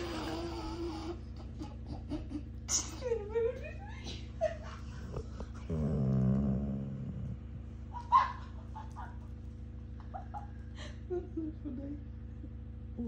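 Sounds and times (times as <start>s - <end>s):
dog moaning and grumbling: 0.0s - 1.4s, 4.8s - 7.9s.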